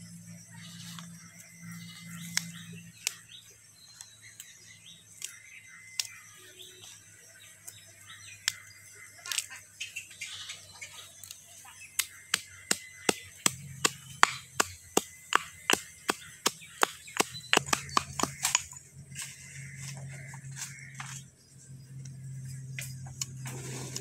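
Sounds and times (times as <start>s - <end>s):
blade chopping on cutting surface: 12.0s - 18.6s.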